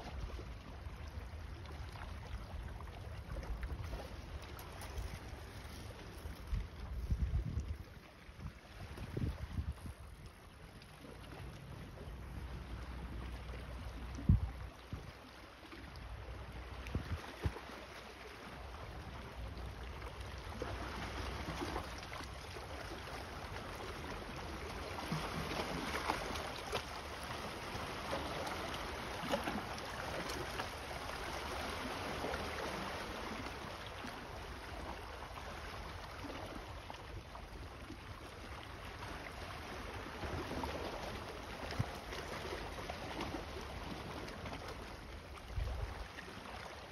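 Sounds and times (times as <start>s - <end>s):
waves lapping on rocks: 0.0s - 46.9s
wind on microphone: 5.0s - 10.3s, 14.0s - 15.2s, 16.8s - 17.6s.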